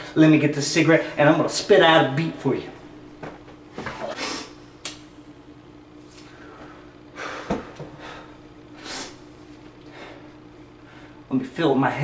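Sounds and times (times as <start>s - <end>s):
faint steady hum: 0.0s - 12.0s
man breathing hissy breaths: 4.0s - 4.6s, 6.1s - 11.2s.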